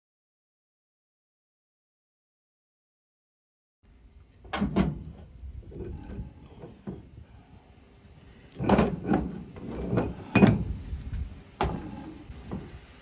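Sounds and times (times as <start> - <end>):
heavy steel parts clanking: 8.5 - 10.8.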